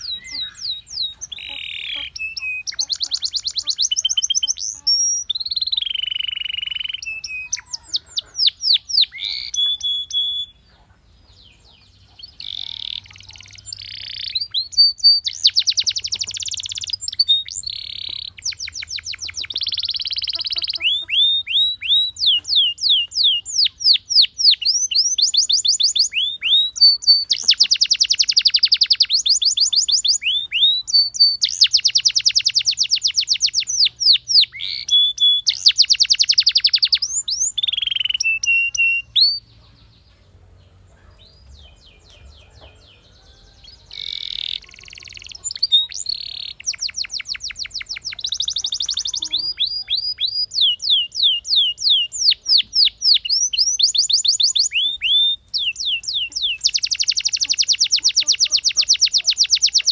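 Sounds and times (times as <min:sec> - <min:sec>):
canary singing trills: 0:00.0 - 0:59.9.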